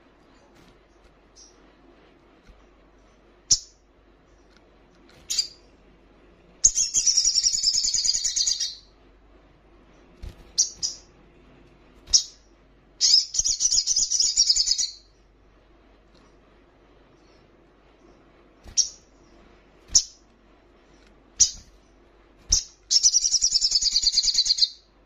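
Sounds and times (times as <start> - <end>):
bird chirps: 3.5 - 3.8, 5.3 - 5.7, 6.6 - 8.9, 10.6 - 11.2, 13.0 - 15.1, 21.4 - 21.8, 22.5 - 24.9
high-pitched bird trills: 6.6 - 8.9, 13.0 - 15.1, 22.5 - 24.9.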